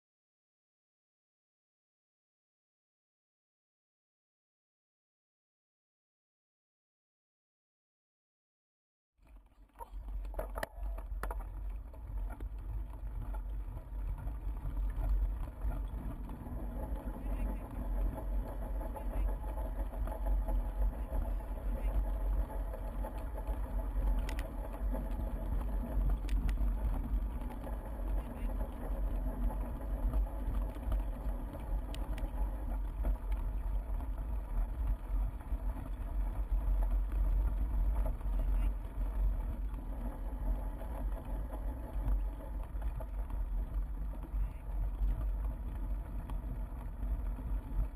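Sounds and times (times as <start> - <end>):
wind rumble on microphone: 9.4 - 47.9
bike riding vibration: 9.6 - 47.9.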